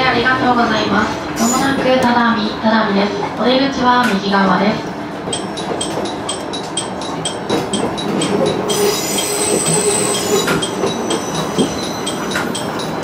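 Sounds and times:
railcar rolling over points: 5.2s - 13.0s
wheels squealing: 8.2s - 13.0s.

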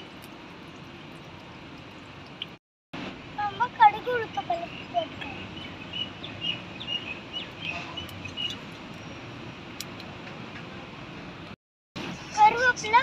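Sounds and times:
birds chirping: 4.3s - 9.4s.

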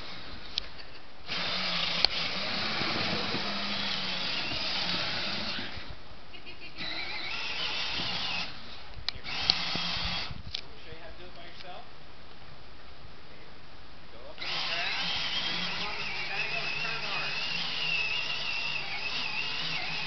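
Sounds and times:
plastic wheels rolling: 2.0s - 5.8s
toy car electric motor whining: 6.8s - 8.6s, 9.3s - 10.4s, 14.4s - 20.0s.

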